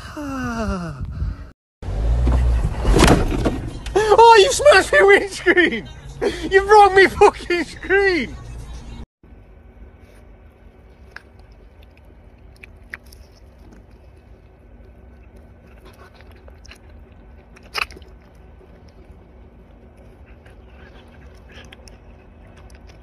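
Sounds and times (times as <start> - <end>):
red panda chewing crunchy treat: 10.6 - 23.0.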